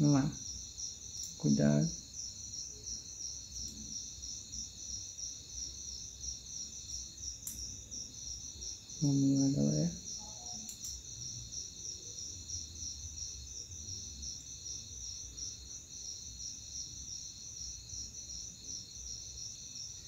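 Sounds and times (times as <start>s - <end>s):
cricket chirping: 0.0s - 20.0s
small click: 7.4s - 7.6s, 10.7s - 11.0s.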